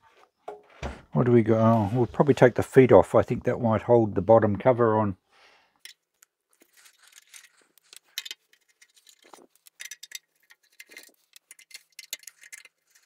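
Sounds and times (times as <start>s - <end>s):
screwdriver clicks and scrapes: 5.8s - 13.0s.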